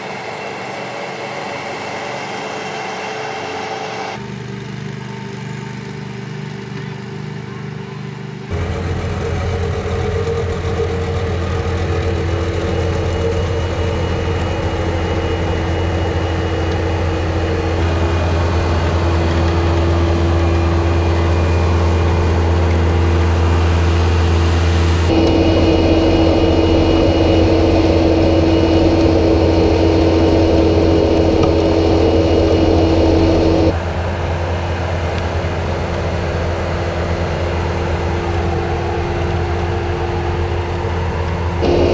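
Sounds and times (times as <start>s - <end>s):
diesel engine droning: 8.5s - 33.8s, 41.6s - 41.9s.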